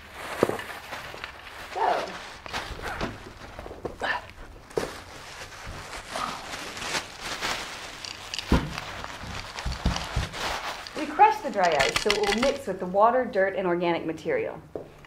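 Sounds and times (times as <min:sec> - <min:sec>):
plastic bags crinkling: 0:00.0 - 0:12.8.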